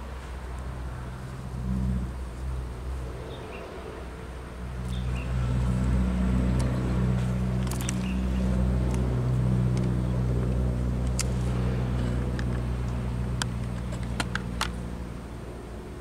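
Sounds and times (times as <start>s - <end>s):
motor engine droning: 0.6s - 16.0s
sharp clicks: 7.6s - 8.2s.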